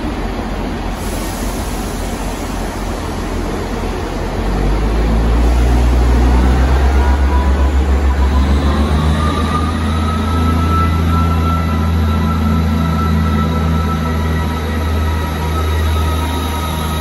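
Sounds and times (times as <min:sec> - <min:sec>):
diesel train engine revving: 0:00.0 - 0:17.0.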